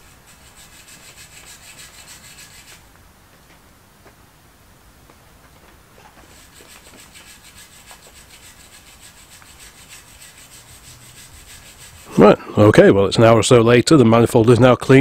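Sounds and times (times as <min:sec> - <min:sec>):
brush scrubbing metal: 0:00.0 - 0:02.9, 0:06.2 - 0:12.4.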